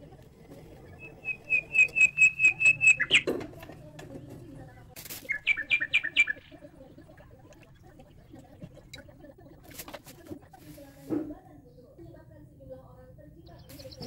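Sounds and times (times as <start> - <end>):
bird chirping: 0.4 - 9.6, 13.4 - 14.0.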